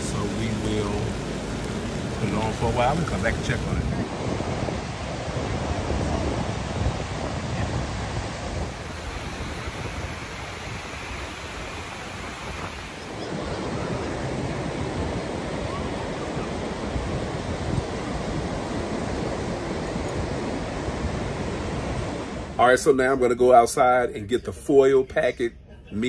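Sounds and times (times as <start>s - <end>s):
wind rumbling on microphone: 0.0s - 22.6s
waves breaking on sand: 0.0s - 22.8s.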